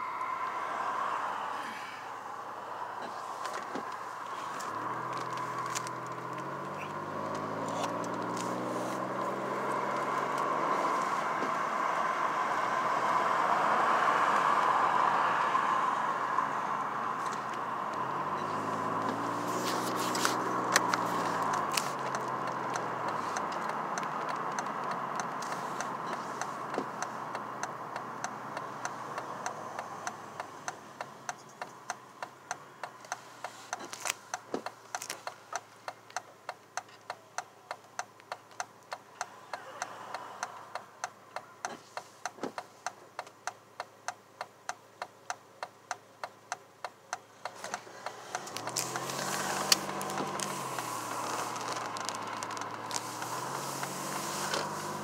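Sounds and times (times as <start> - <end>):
car slowing to a stop: 0.0 - 55.0
turn signal ticking: 2.8 - 55.0.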